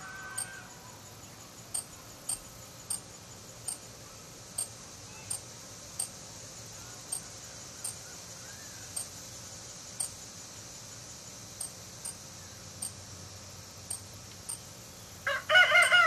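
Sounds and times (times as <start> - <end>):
high insect hiss: 0.0 - 16.0
sharp high insect chirp: 0.0 - 16.0.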